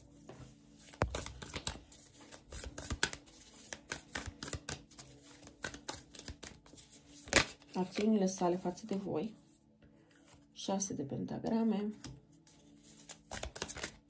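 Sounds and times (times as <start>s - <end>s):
cards being shuffled: 0.4s - 9.0s, 12.0s - 14.0s.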